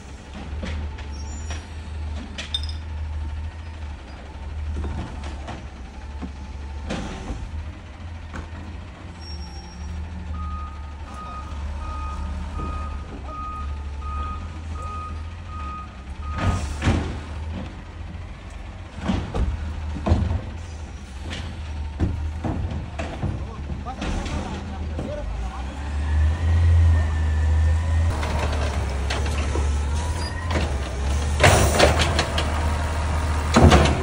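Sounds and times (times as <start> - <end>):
garbage truck running: 0.0 - 34.0
cart banging and knocking: 18.8 - 25.6, 28.1 - 34.0.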